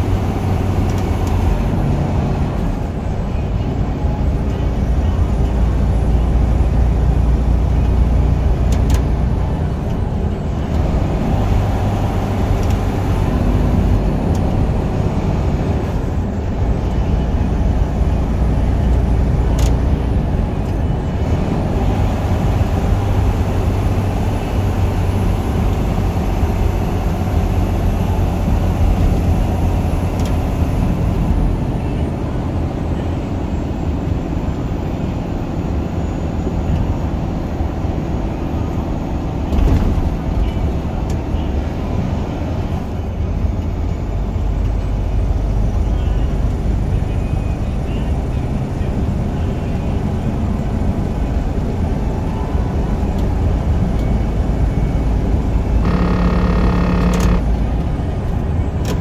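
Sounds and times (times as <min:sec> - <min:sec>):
truck engine rumble: 0:00.0 - 0:59.0.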